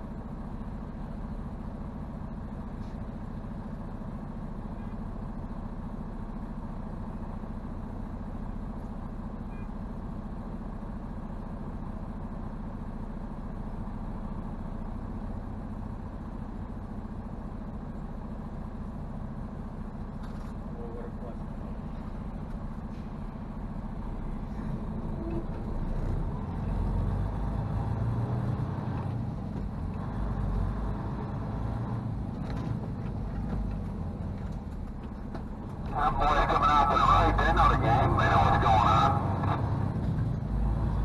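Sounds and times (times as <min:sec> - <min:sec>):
diesel truck engine droning: 0:00.0 - 0:41.0.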